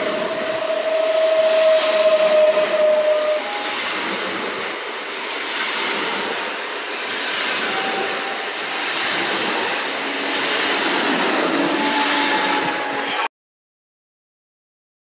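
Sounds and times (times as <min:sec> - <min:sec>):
train running noise hiss: 0:00.0 - 0:13.3.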